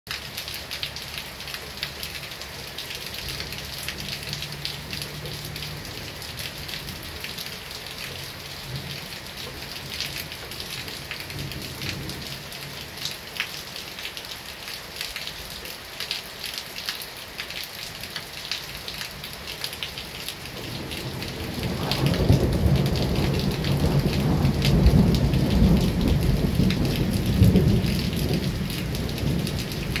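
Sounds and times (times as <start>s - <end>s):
heavy rain falling: 0.1s - 30.0s
rain drops ticking: 0.1s - 30.0s
thunder rolling: 20.5s - 30.0s.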